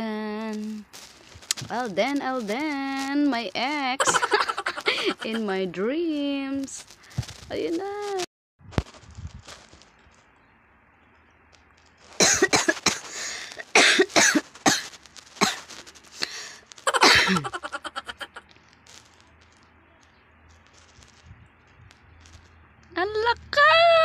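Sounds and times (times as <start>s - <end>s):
person's breathy vocal bursts: 4.7s - 5.2s, 13.0s - 14.0s, 16.2s - 17.5s.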